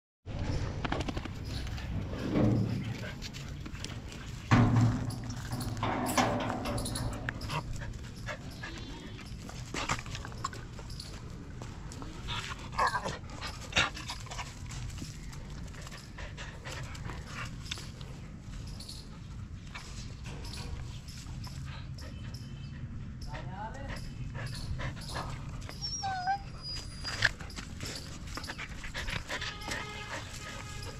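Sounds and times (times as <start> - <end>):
dog whining: 25.0 - 28.1
dog yipping: 25.7 - 27.3.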